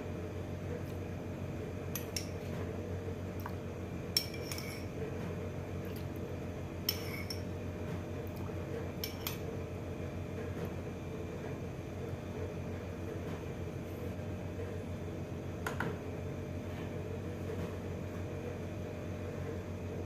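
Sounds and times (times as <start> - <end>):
steady low hum: 0.0 - 20.0
metal spoon clinking against bowl: 4.2 - 4.9, 6.9 - 7.4.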